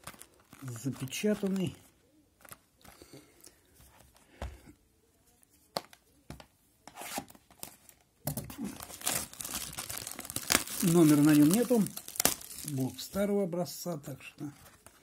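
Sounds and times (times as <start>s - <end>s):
plastic wrap crinkling and tearing: 0.0s - 1.8s, 8.4s - 13.3s
scissors cutting plastic wrap: 8.8s - 12.7s.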